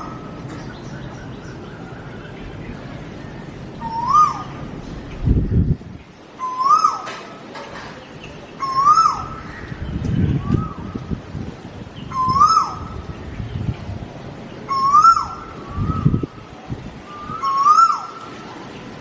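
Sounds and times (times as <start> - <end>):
bird calling: 0.0 - 5.3, 6.3 - 11.1, 12.0 - 13.2, 14.6 - 16.4, 17.1 - 19.0.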